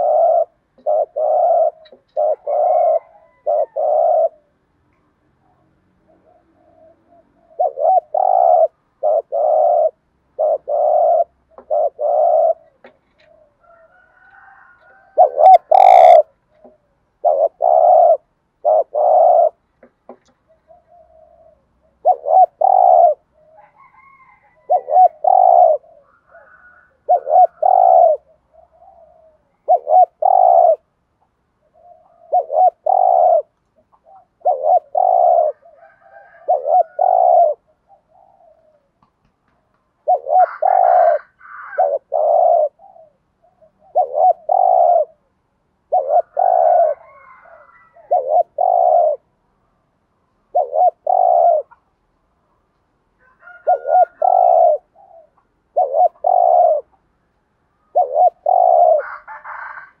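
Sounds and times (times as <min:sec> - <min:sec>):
dove cooing: 0:00.0 - 0:49.4, 0:50.4 - 0:51.9, 0:53.2 - 0:57.1, 0:57.8 - 1:00.0.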